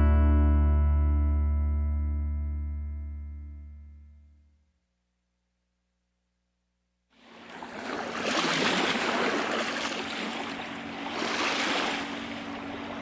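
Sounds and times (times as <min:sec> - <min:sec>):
running water: 0:07.2 - 0:13.0.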